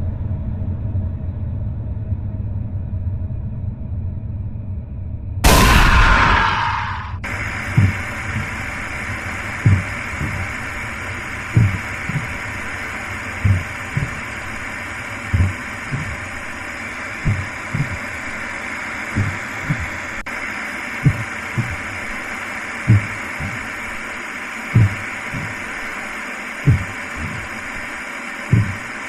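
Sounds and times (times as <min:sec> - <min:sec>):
heartbeat thumps: 0:05.4 - 0:20.4, 0:21.0 - 0:29.0
steady hissing drone: 0:05.4 - 0:29.0.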